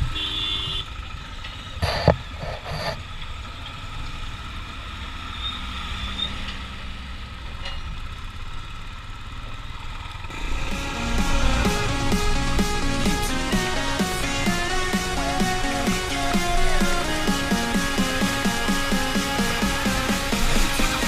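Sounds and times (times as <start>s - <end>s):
motorcycle engine running: 6.0s - 21.0s
music: 10.3s - 21.0s.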